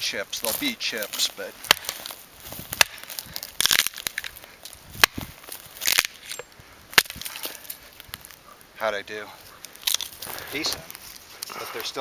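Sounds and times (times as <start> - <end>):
axe chopping into stump: 1.6 - 4.2, 4.9 - 7.3.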